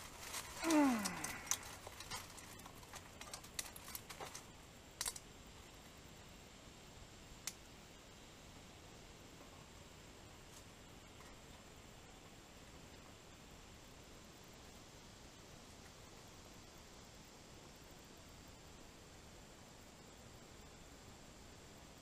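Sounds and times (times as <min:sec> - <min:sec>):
dry twigs snapping: 0:00.0 - 0:05.2
groan-like voice: 0:00.6 - 0:01.8.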